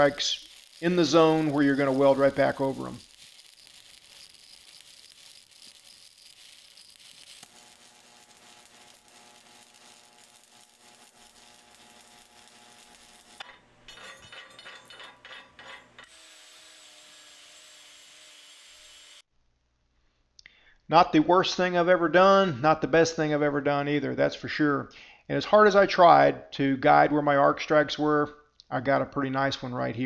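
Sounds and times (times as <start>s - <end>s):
angle grinder whining: 0.0s - 13.6s, 15.9s - 19.2s
welding arc crackling and hissing: 0.0s - 19.3s.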